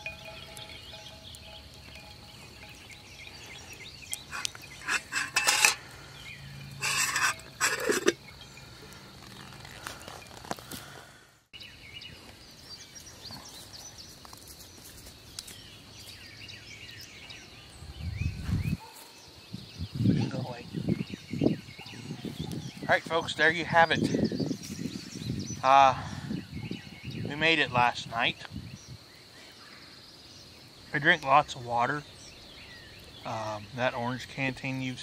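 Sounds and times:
birds chirping: 0.0 - 10.9, 11.6 - 35.0
metal kettle clattering: 4.3 - 5.8, 6.8 - 8.2.

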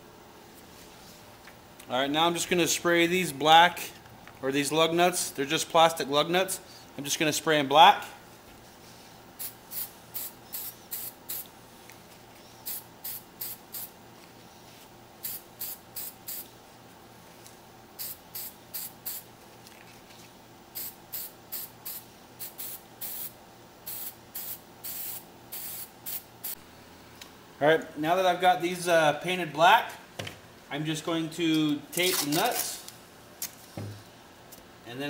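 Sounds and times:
spray paint can hissing: 9.4 - 11.5, 12.6 - 13.9, 15.2 - 16.5, 18.0 - 19.2, 20.8 - 23.3, 23.9 - 26.6.

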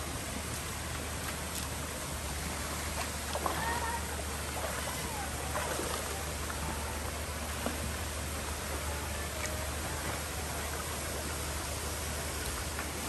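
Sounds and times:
flowing river water: 0.0 - 13.0
faint distant voices: 3.3 - 13.0.

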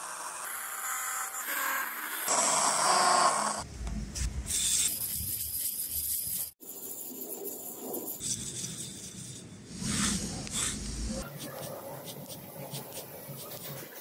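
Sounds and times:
chisel scraping on abrasive paper: 4.6 - 7.0, 7.6 - 14.0.

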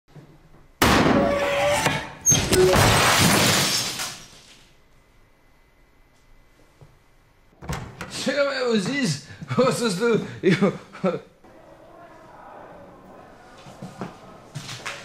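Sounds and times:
tv crashing with breaking glass: 0.8 - 4.5.

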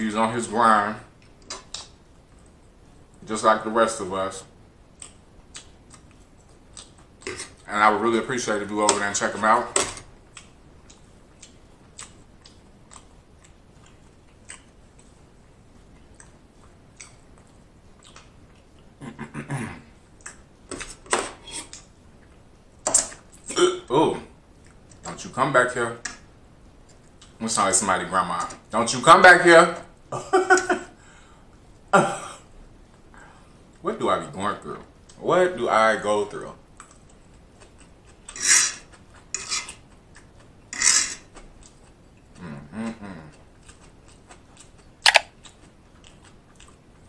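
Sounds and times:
man chewing food: 4.8 - 7.7, 10.0 - 23.6, 24.4 - 25.1, 26.2 - 27.4, 36.6 - 47.0
throat vocal sound: 19.0 - 20.0, 42.3 - 43.5
mouth clicks: 45.0 - 45.6.

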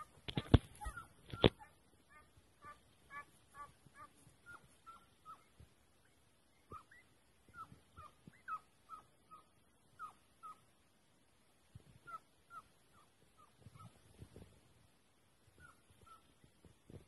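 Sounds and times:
distant hounds baying: 0.8 - 5.6, 6.6 - 10.7.

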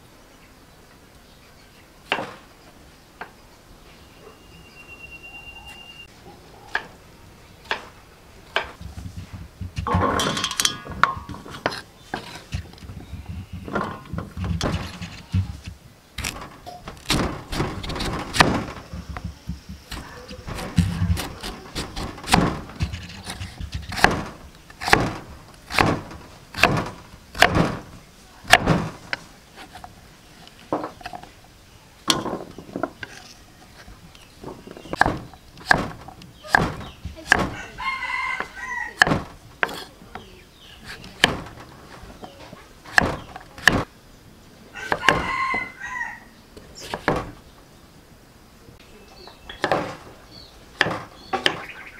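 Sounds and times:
cleaver chopping on wooden board: 17.0 - 27.9, 28.5 - 29.0, 34.9 - 37.6, 38.4 - 39.9, 40.8 - 41.6, 42.9 - 43.9, 44.9 - 45.6, 49.6 - 50.0, 50.8 - 51.8.

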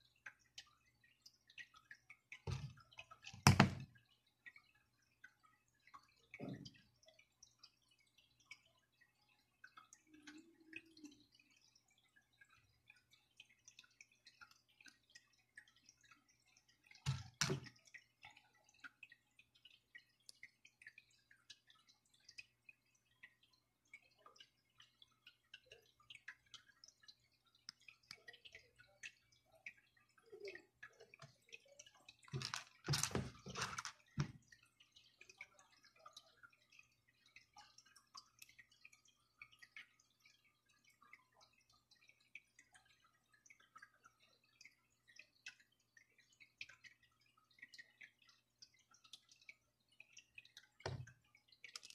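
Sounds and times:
clicks and taps on cutting board: 3.4 - 3.9.

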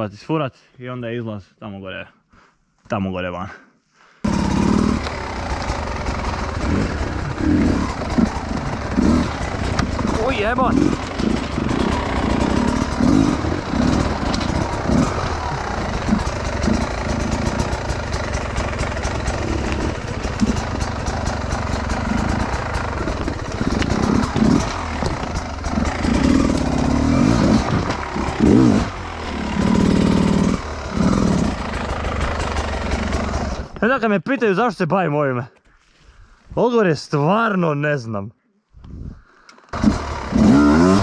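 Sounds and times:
dirt bike engine revving: 4.3 - 33.8, 39.8 - 41.0.

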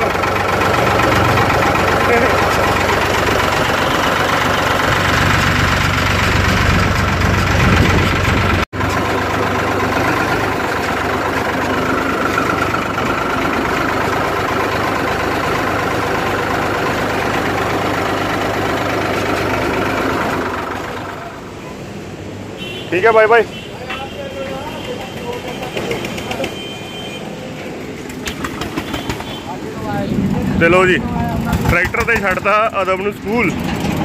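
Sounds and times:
tractor engine running: 0.0 - 21.6, 27.7 - 34.0.

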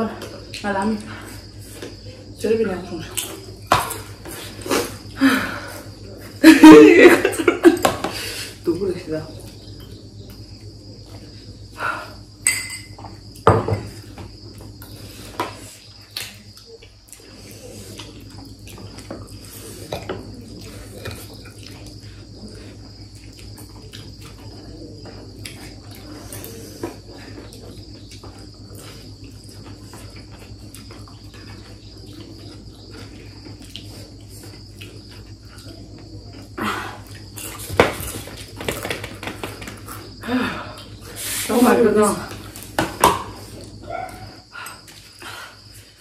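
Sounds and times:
forks clinking on plates: 12.4 - 13.0.

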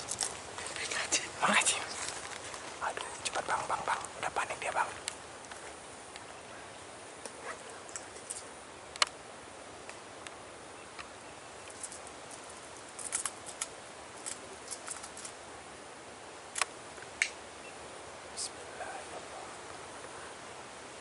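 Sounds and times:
steady hiss: 0.0 - 21.0.

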